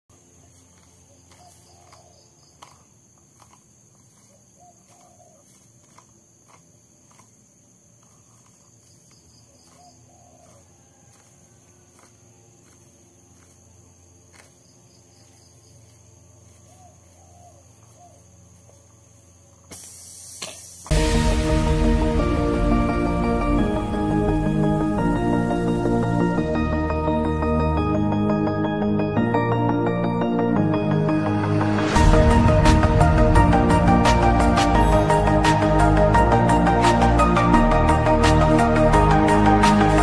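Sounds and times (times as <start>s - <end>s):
droning insects: 0.0s - 40.0s
loud music: 20.9s - 40.0s.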